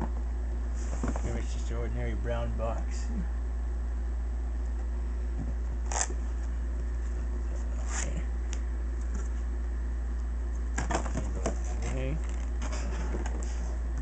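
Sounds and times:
steady low hum: 0:00.0 - 0:14.0
cardboard and plastic scraping rustles: 0:00.7 - 0:01.6, 0:10.8 - 0:13.8.

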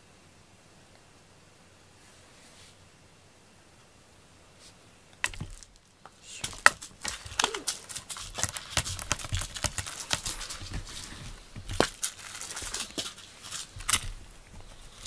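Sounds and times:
cat scratching fabric: 0:04.6 - 0:15.0.

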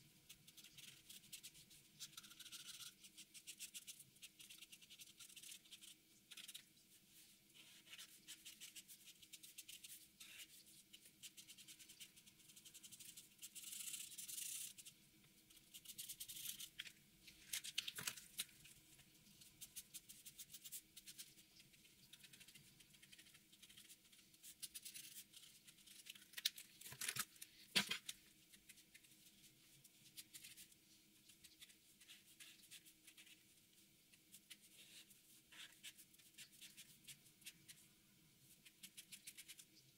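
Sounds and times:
marker scratching on paper: 0:00.5 - 0:06.6, 0:07.6 - 0:14.8, 0:31.3 - 0:33.5, 0:34.3 - 0:37.8.

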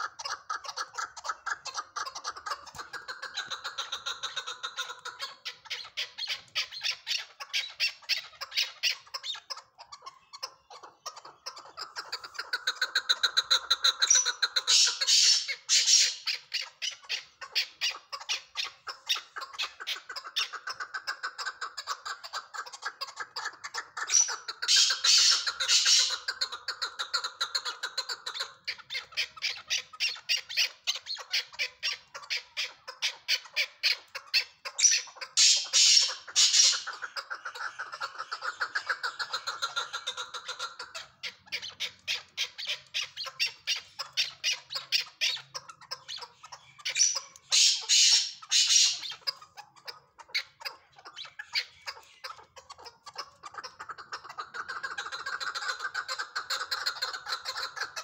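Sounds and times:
partridge clucking calls: 0:00.0 - 0:58.0.

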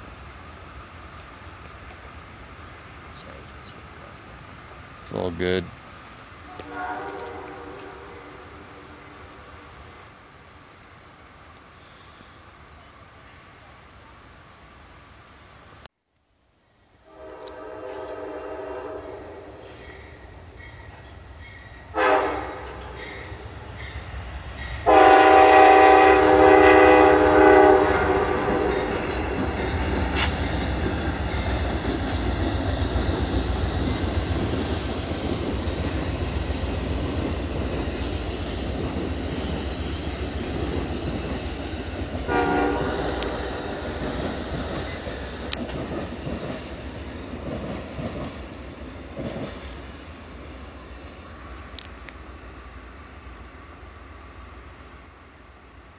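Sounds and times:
train rumble and wheel clatter: 0:00.0 - 0:15.9, 0:17.0 - 0:55.9
locomotive horn blasts: 0:06.4 - 0:09.4, 0:17.0 - 0:19.6, 0:21.9 - 0:22.8, 0:24.8 - 0:28.9, 0:42.3 - 0:43.5.

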